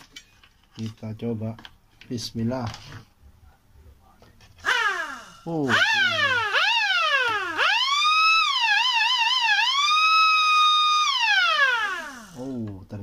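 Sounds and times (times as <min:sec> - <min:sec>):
electric siren wailing: 0:04.6 - 0:12.4.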